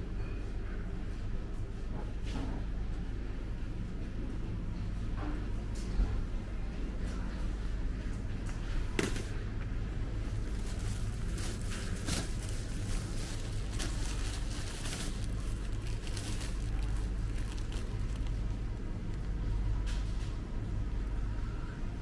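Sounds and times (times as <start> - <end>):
steady low hum: 0.0 - 22.0
plastic bag crinkling: 10.3 - 19.3.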